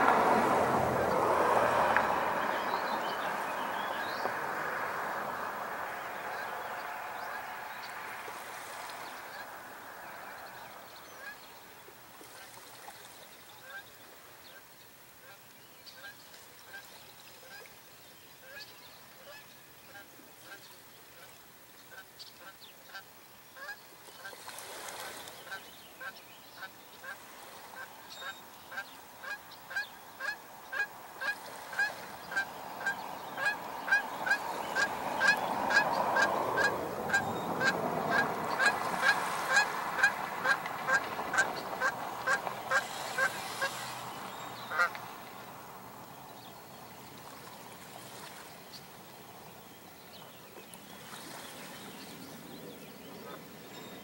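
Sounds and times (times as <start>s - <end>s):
bird honking: 23.6s - 24.4s, 27.8s - 43.9s, 44.6s - 45.0s.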